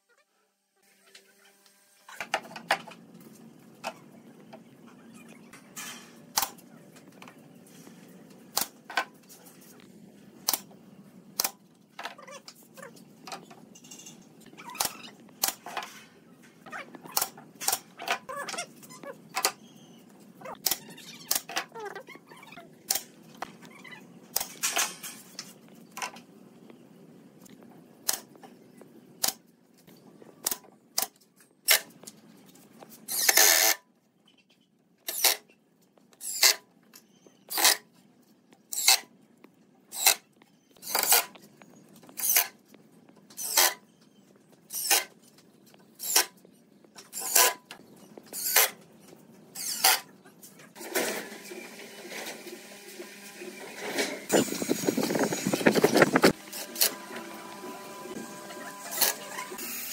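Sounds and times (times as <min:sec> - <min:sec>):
cordless drill burst: 0:58.2 - 0:59.9.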